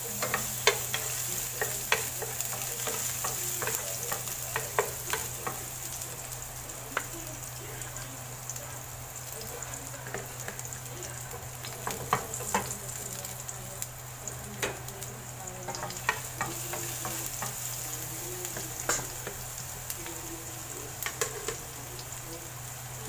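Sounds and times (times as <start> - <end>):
wooden spatula stirring: 0.0 - 6.3
garlic sizzling in hot oil: 0.0 - 23.0.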